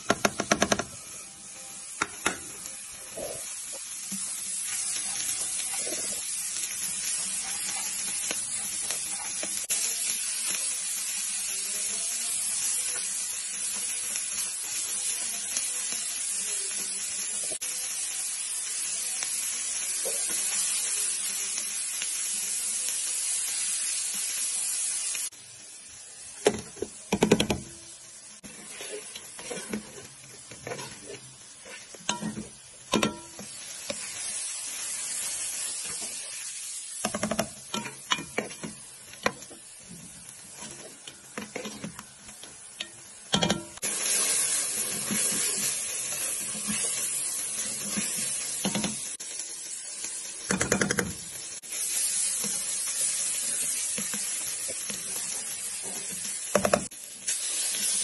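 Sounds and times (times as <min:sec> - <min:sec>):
vegetables sizzling in hot oil: 0:00.0 - 0:58.0
utensil knocking on pan: 0:00.1 - 0:00.9.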